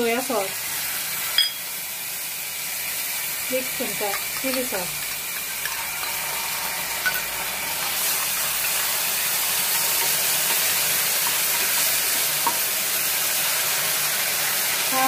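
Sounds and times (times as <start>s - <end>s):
sauce sizzling in a pan: 0.0s - 15.0s
spatula stirring: 7.8s - 12.6s.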